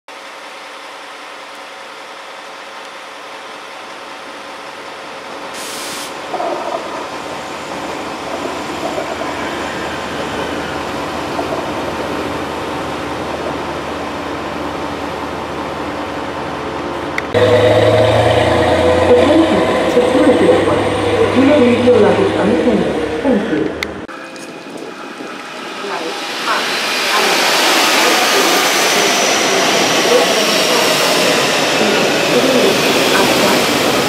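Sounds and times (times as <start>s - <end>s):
diesel train running past: 0.1s - 34.0s
short air hiss: 5.6s - 6.2s.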